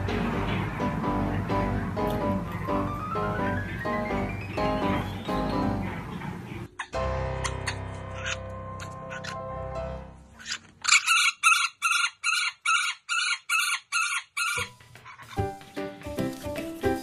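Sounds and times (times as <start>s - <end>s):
background music: 0.0s - 10.4s, 14.7s - 17.0s
parrots calling loudly: 2.6s - 9.5s, 10.4s - 15.4s.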